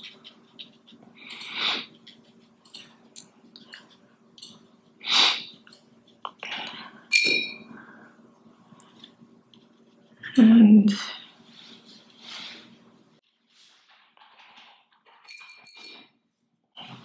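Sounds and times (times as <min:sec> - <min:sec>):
faint steady hum: 0:00.0 - 0:17.0
person sniffing through nose: 0:05.0 - 0:05.6.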